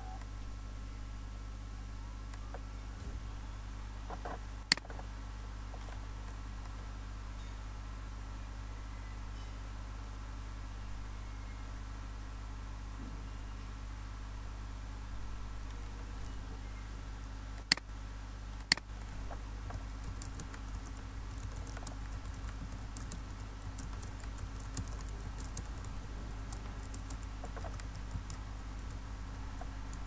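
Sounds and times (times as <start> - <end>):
low hum: 0.0 - 30.0
sharp clicks: 4.7 - 4.9, 17.6 - 17.9, 18.6 - 29.0
typing on keyboard: 19.6 - 30.0.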